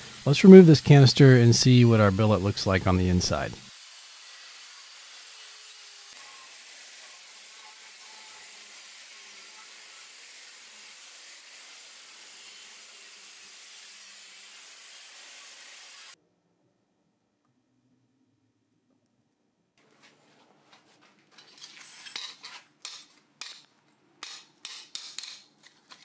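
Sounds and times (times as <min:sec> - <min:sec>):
angle grinder cutting steel: 0:00.0 - 0:16.2.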